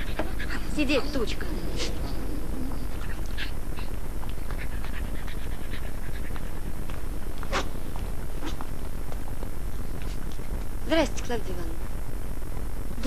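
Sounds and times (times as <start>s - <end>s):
dog panting: 0.0s - 8.7s
steady low hum: 0.0s - 13.0s.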